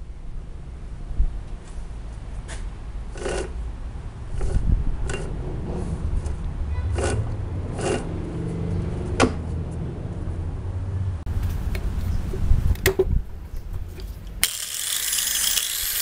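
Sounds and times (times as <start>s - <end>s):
low rumble: 3.6s - 14.0s
handling scrapes and rubs: 4.3s - 8.9s.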